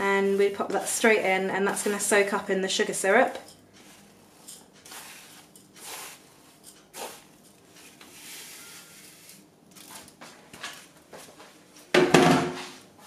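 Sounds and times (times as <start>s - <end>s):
coconut scraped into pot: 3.3s - 9.5s.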